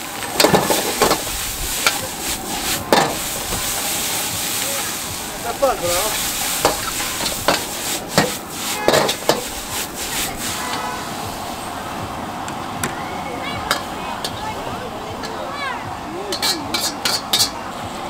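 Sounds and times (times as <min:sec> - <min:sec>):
noodles sizzling in a wok: 0:00.0 - 0:11.8, 0:15.2 - 0:17.6
metal ladle scraping a wok: 0:00.1 - 0:11.3, 0:16.3 - 0:17.6.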